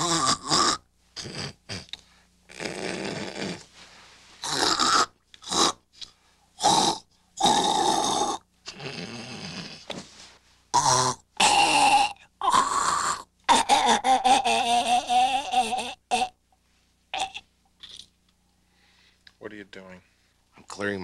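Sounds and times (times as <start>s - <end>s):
man snorting and hawking: 0.0s - 3.7s.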